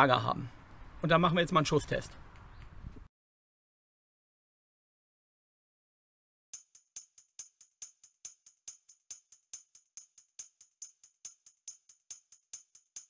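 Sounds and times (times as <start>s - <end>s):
jingling tambourine beat: 6.6s - 13.0s.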